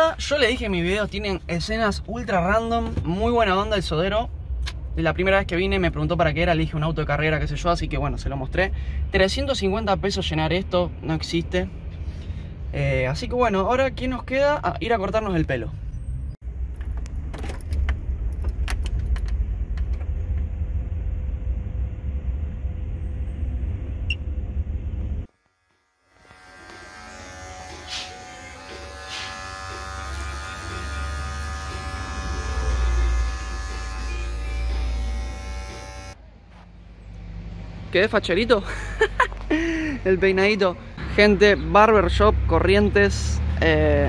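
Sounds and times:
electric hair clippers buzzing: 25.3s - 36.2s.

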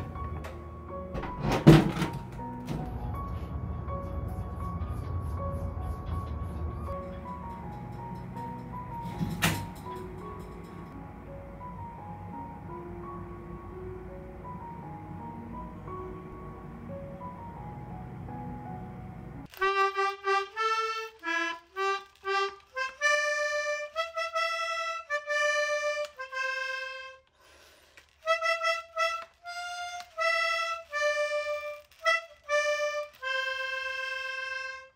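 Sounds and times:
background music: 0.0s - 27.3s
simple melody of held notes: 10.9s - 27.2s.

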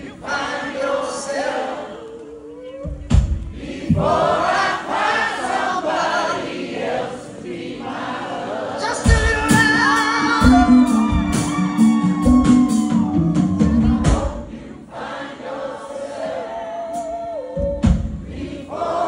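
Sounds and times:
drums: 2.6s - 5.0s, 8.9s - 14.8s, 16.0s - 19.0s
person singing: 8.9s - 14.4s
bass line: 9.1s - 14.4s.

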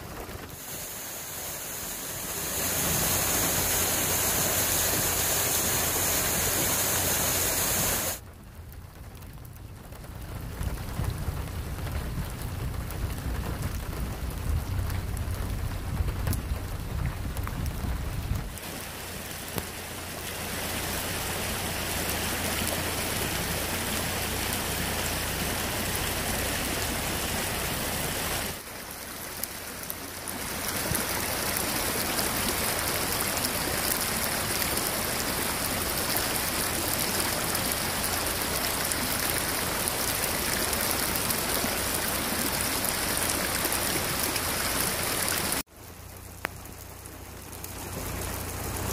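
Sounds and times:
rainwater running down road: 0.0s - 48.9s
steady rain: 0.0s - 48.9s
low rumble: 8.2s - 18.5s.

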